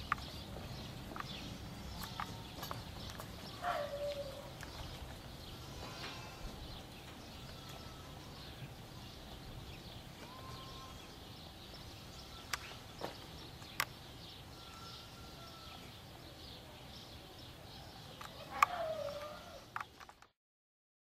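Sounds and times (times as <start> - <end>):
faint birds chirping: 0.0 - 20.3
sharp clicks: 13.6 - 14.0.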